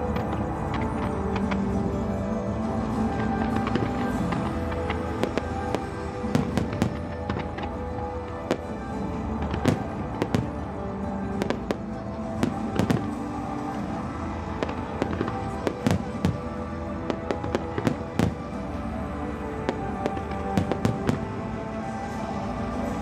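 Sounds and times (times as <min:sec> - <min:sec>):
fireworks bangs and crackles: 0:00.0 - 0:23.0
music playing: 0:00.0 - 0:23.0.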